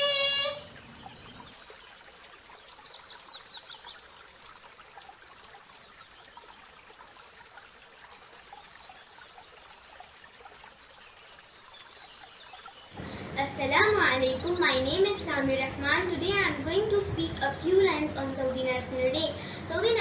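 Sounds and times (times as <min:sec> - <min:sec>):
water trickling: 0:00.0 - 0:20.0.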